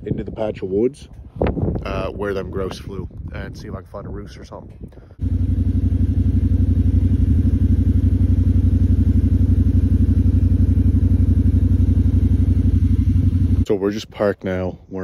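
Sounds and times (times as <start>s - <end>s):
vehicle engine idling: 4.5s - 13.6s.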